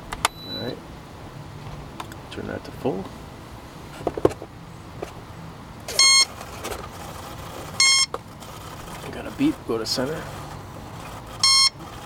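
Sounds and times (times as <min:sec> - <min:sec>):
short high beeps: 0:00.3 - 0:00.8, 0:05.9 - 0:06.3, 0:07.8 - 0:08.1, 0:11.4 - 0:11.8.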